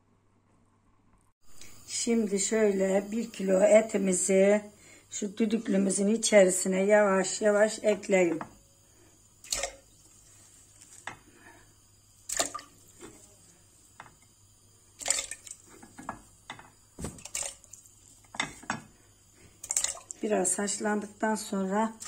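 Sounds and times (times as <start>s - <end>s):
meat plopping into water: 9.4s - 9.9s, 12.3s - 13.3s, 15.0s - 18.8s, 19.6s - 20.2s.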